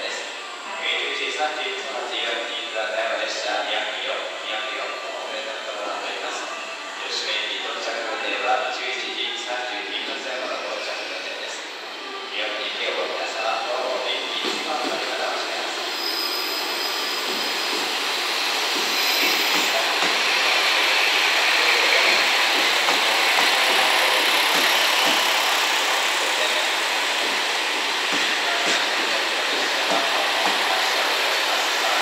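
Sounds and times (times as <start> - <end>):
diesel railcar engines running: 9.0 - 32.0.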